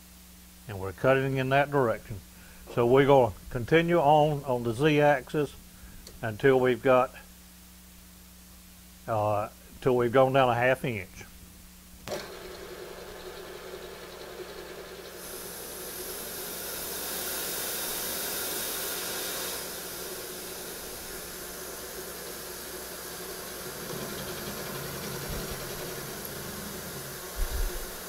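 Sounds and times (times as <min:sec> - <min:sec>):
coolant nozzle hissing: 0:12.1 - 0:28.0
milling machine spindle running: 0:12.1 - 0:28.0.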